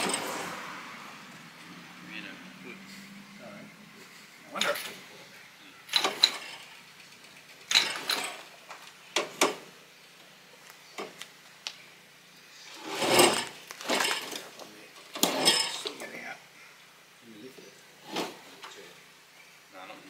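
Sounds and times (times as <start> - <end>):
metal clanks and clinks: 0.0 - 0.4, 5.9 - 8.6, 12.8 - 16.1
metallic rattle: 0.0 - 0.6, 5.9 - 9.7, 12.8 - 16.1.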